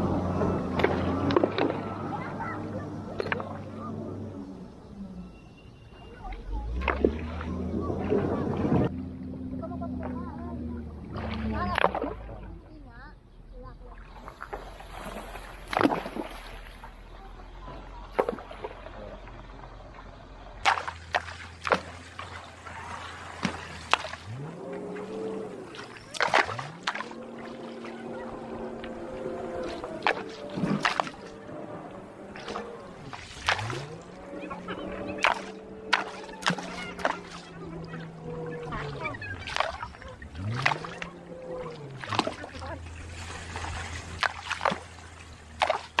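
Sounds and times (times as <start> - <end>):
rocks splashing into river: 14.0 - 17.0, 18.1 - 19.6, 20.6 - 28.0, 29.6 - 31.4, 32.2 - 34.3, 35.0 - 46.0
motor humming: 16.6 - 46.0.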